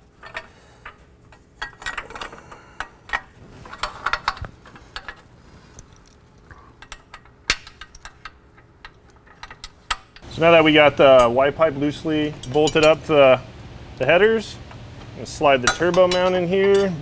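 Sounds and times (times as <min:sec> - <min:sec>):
metal parts and tools clinking: 0:00.0 - 0:10.3, 0:12.2 - 0:13.1, 0:15.6 - 0:17.0.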